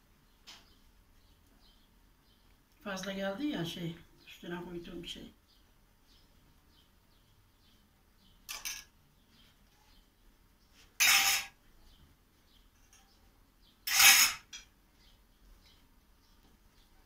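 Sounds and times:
metal spoon scraping bowl: 0:11.0 - 0:11.6, 0:13.9 - 0:14.6.

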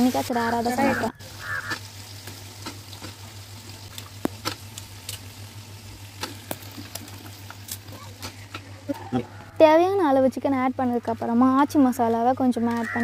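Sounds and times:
chicken frying in oil: 0:00.0 - 0:09.0
oil crackling and popping: 0:00.0 - 0:09.0.

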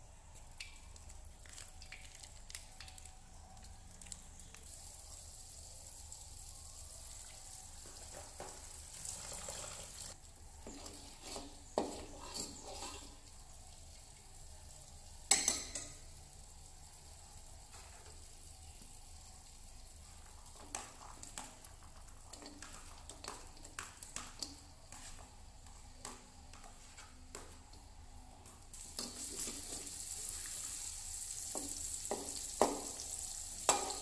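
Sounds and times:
oil sizzling in a wok: 0:04.5 - 0:34.0.

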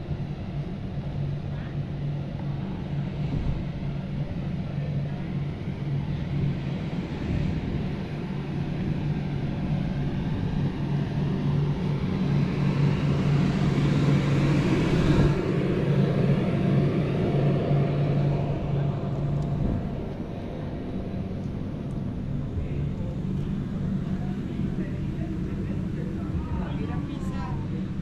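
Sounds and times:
blower fan humming: 0:07.6 - 0:28.0.

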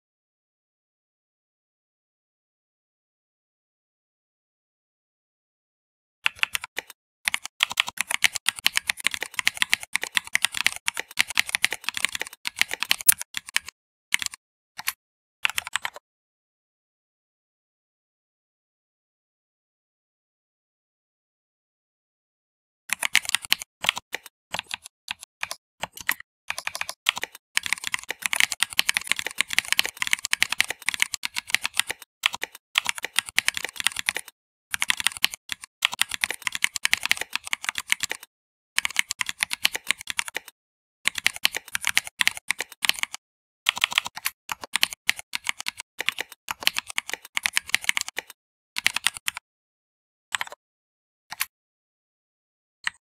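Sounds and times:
typing on computer keyboard: 0:06.3 - 0:16.0, 0:22.9 - 0:49.4, 0:50.3 - 0:50.6, 0:51.3 - 0:51.5.

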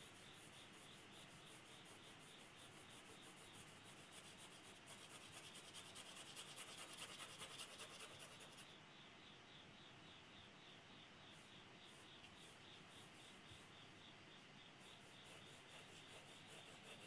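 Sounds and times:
pencil hatching on paper: 0:00.7 - 0:08.6, 0:14.9 - 0:17.0.

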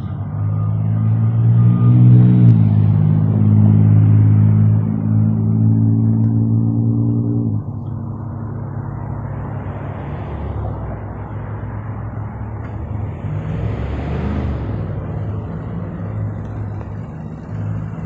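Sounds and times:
road traffic noise: 0:00.0 - 0:18.0
vehicle engine hum: 0:00.0 - 0:18.0.

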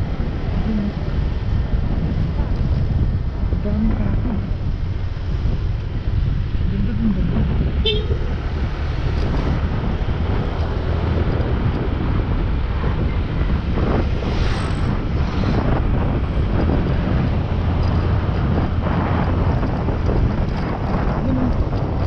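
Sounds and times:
motorcycle engine noise: 0:00.0 - 0:22.0
wind on microphone: 0:00.0 - 0:22.0
horn toot: 0:07.8 - 0:08.2.

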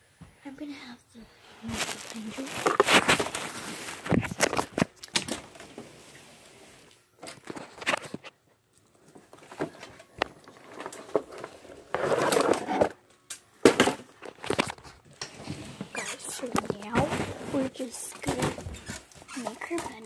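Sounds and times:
clothing rustling: 0:01.4 - 0:08.3, 0:14.3 - 0:20.0.

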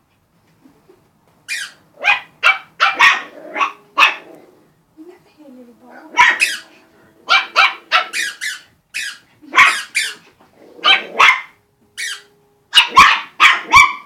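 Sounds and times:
puppies yapping: 0:01.5 - 0:04.3, 0:06.2 - 0:14.0.

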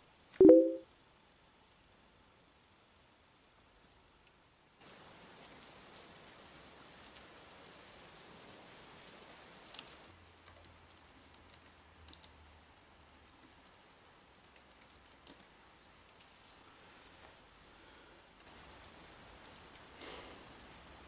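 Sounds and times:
faint hiss: 0:00.0 - 0:21.0
laptop keyboard typing: 0:09.7 - 0:15.6.

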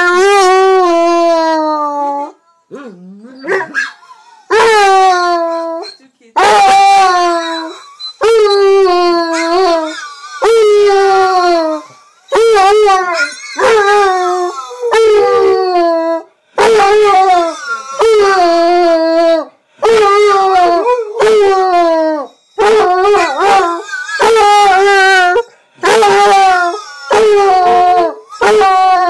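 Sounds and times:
dog howling: 0:00.0 - 0:29.0.

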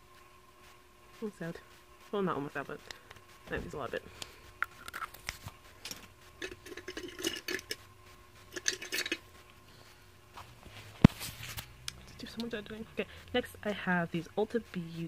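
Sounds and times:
plastic tubes clicking and clattering: 0:05.9 - 0:07.8, 0:08.5 - 0:09.2.

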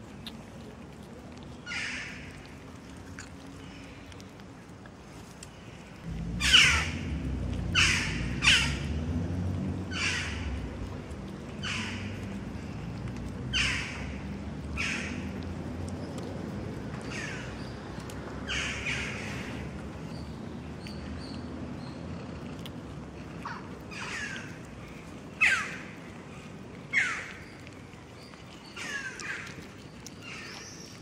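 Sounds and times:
low rumble: 0:06.0 - 0:16.8.

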